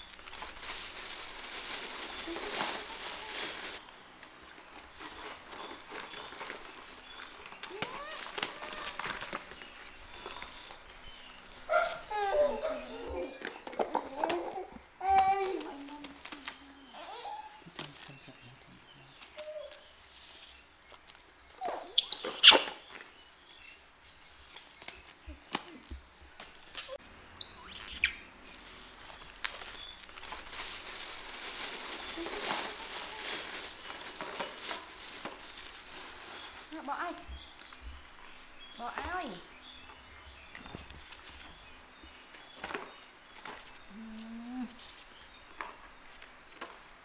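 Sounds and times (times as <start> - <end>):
plastic bag crinkling: 0.0 - 3.8, 28.6 - 36.9
baby monkey screaming: 21.6 - 22.8, 27.4 - 28.2.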